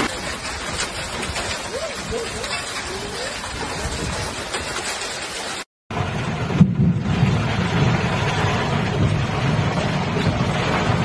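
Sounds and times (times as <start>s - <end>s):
heavy rain drumming on vehicle: 0.0s - 11.0s
vehicle low rumble: 5.9s - 11.0s.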